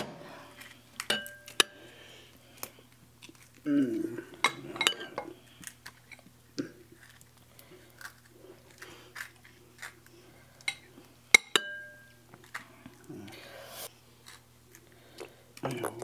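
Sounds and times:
spoons clicking on plates: 1.0 - 1.8
spoon clinking against dish: 1.1 - 1.8, 11.4 - 12.1
crisp shells cracking and crunching: 2.6 - 3.9, 5.5 - 10.6.

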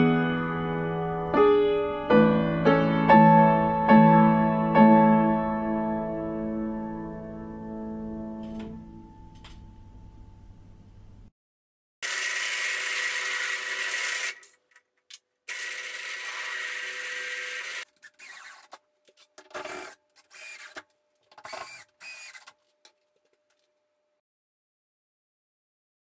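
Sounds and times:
drill press boring into wood: 12.0 - 14.6, 15.5 - 18.8, 19.6 - 22.6.

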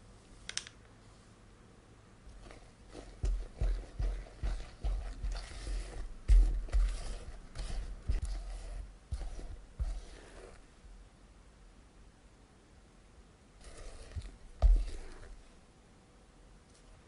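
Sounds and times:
spatula folding batter in bowl: 2.3 - 10.7, 13.6 - 15.5.

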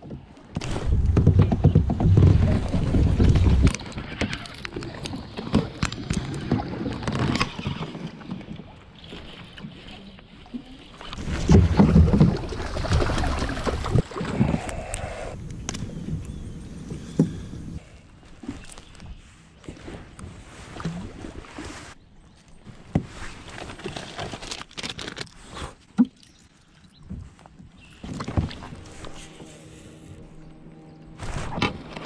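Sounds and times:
fish splashing and thumping: 0.6 - 9.7, 11.0 - 14.9.

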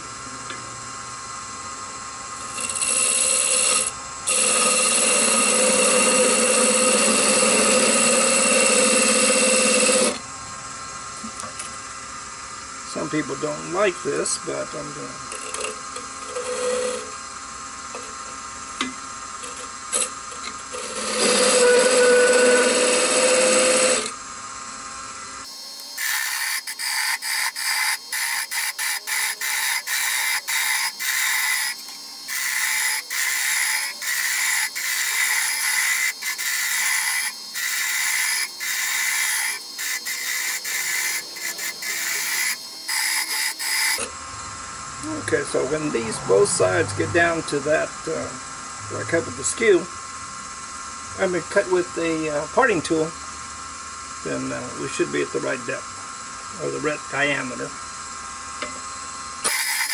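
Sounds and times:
steady lathe hum: 0.0 - 59.9
parting tool cutting wood on lathe: 2.4 - 10.2, 15.3 - 17.1, 20.7 - 24.2, 25.5 - 44.1, 59.4 - 59.9
hissy wood shaving strokes: 25.5 - 44.0.

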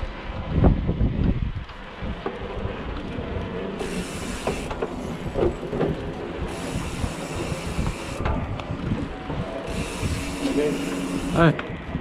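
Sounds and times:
bike tyre rumble on planks: 0.0 - 11.3
wind noise on microphone: 0.0 - 12.0
wheels clicking over board joints: 1.2 - 11.8.

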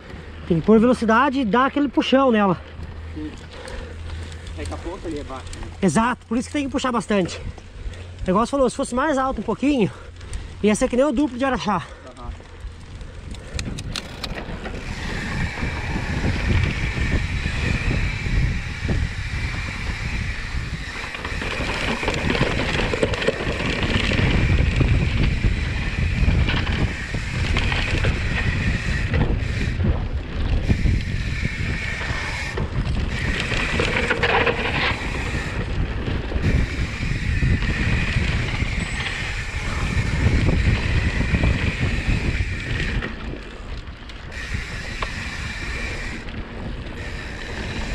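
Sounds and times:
bike tyre noise on dirt: 0.0 - 47.9
wind buffeting microphone: 0.0 - 47.9
steady high whine: 13.8 - 23.4.

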